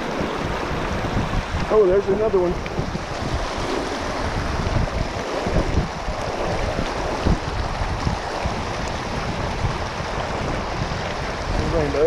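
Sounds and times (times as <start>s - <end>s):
stream rushing over rocks: 0.0s - 12.0s.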